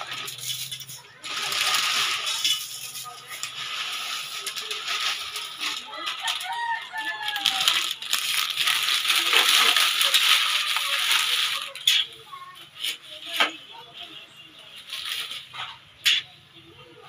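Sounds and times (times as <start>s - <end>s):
metal spatula scraping wok: 0.0s - 13.6s
rooster crowing: 6.0s - 7.8s.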